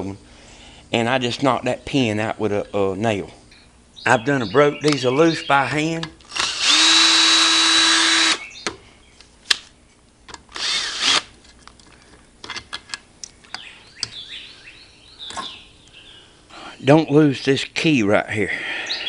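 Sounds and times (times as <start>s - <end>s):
cordless drill motor whine: 6.2s - 8.6s, 10.4s - 11.3s.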